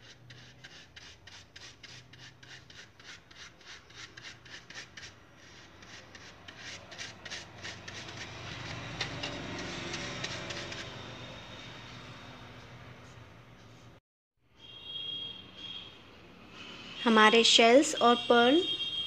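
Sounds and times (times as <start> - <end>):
paintbrush scratchy brushing: 0.0 - 11.2.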